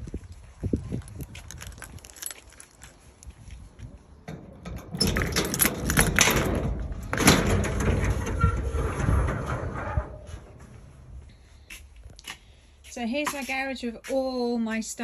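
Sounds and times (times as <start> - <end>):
key turning in lock: 1.2 - 3.0, 4.8 - 6.6
metal garage door rattling: 4.3 - 10.7.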